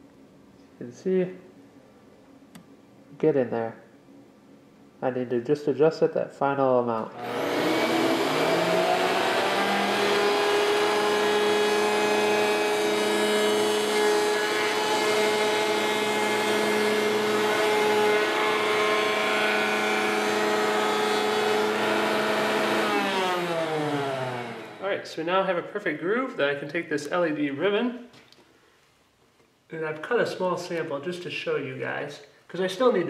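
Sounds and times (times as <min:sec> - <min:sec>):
router whining while cutting wood: 0:07.2 - 0:24.8.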